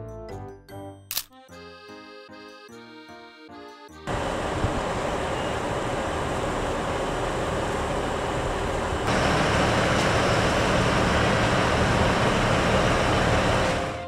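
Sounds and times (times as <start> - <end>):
diesel train engine idling: 4.0 - 14.0.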